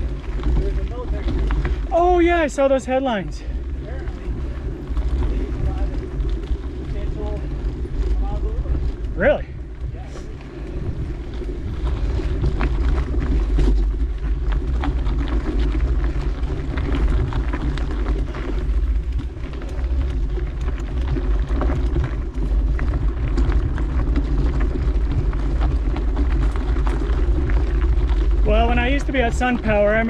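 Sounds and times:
bike clicks and rattles: 0:00.0 - 0:30.0
bike tyre noise on dirt: 0:00.0 - 0:30.0
wind buffeting microphone: 0:00.0 - 0:30.0.

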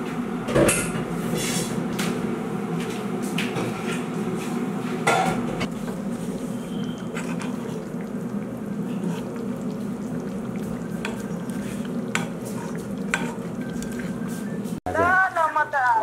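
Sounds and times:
steady low hum: 0:00.0 - 0:14.9
gravy simmering and bubbling: 0:05.6 - 0:14.8.

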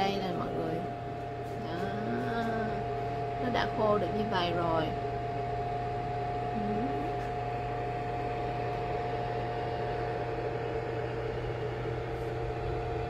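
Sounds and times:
food dehydrator fan humming: 0:00.0 - 0:13.0.

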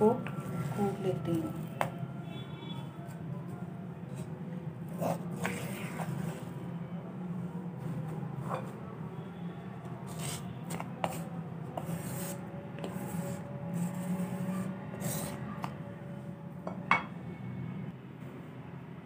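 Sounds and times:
wooden pestle scraping in stone mortar: 0:05.0 - 0:06.4, 0:10.1 - 0:15.7.

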